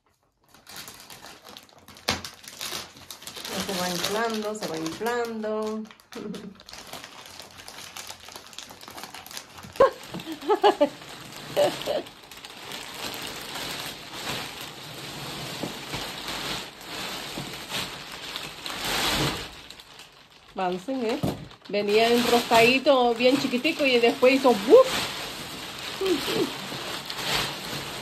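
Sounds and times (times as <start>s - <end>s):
plastic wrapping crackling: 0.0s - 28.0s.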